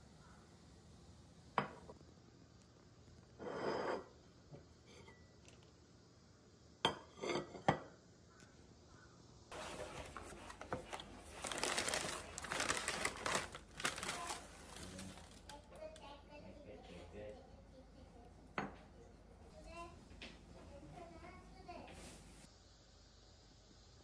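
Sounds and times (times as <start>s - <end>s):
plate scraping: 3.4s - 4.2s
ceramic plates clinking: 6.9s - 7.9s
paper packaging rustling: 9.5s - 15.6s.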